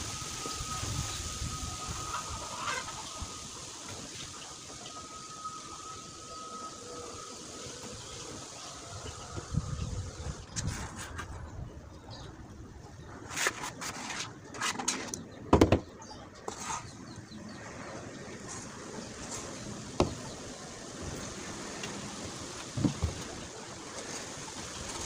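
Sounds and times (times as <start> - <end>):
tools scraping and knocking: 13.3 - 16.9.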